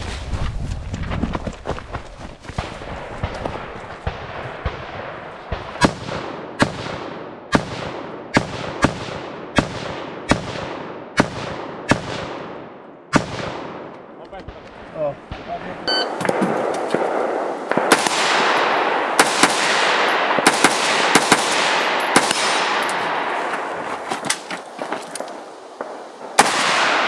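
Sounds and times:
rifle shots with echo: 0:02.6 - 0:14.2, 0:16.2 - 0:23.4, 0:25.8 - 0:27.0.

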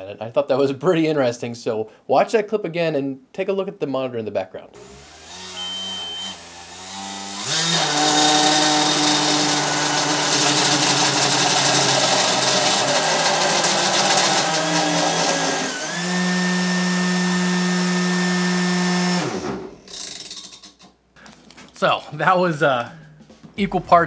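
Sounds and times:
loud motor whine: 0:04.8 - 0:19.5.

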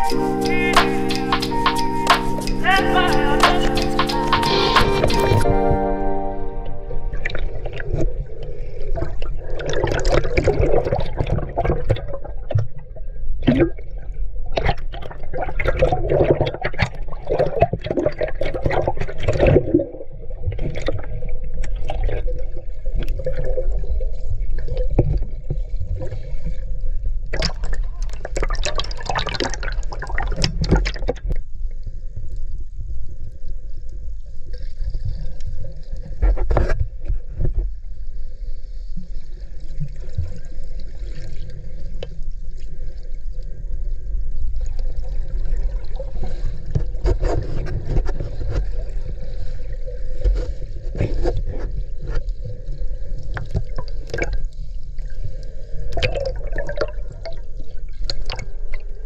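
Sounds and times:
underwater water sloshing: 0:06.7 - 0:59.0.

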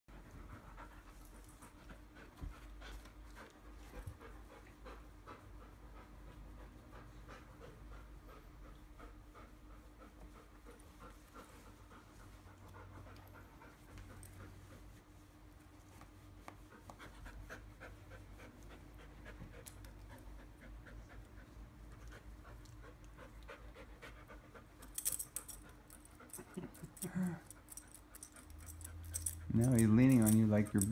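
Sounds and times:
dog panting: 0:00.1 - 0:30.9
rattle: 0:24.8 - 0:30.9.

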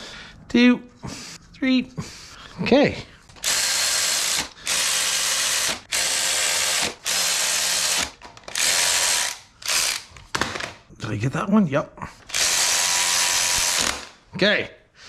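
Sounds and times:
power ratchet running bolts: 0:03.4 - 0:10.1, 0:12.3 - 0:14.1.

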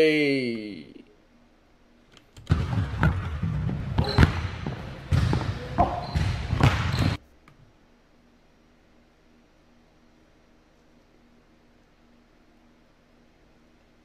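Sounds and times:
basketball bouncing on wooden floor: 0:02.4 - 0:07.2.

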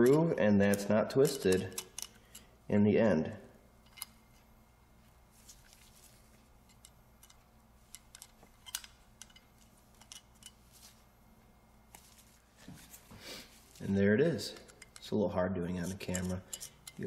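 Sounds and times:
screwdriver clicking on metal: 0:00.0 - 0:02.5, 0:06.7 - 0:10.6, 0:14.5 - 0:15.2, 0:15.8 - 0:17.0
low steady hum: 0:00.0 - 0:17.0.

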